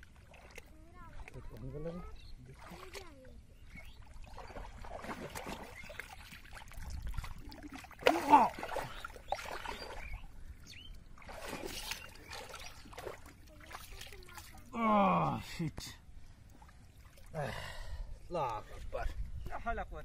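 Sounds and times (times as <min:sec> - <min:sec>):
hands splashing in muddy water: 0:03.8 - 0:10.2, 0:11.2 - 0:14.8.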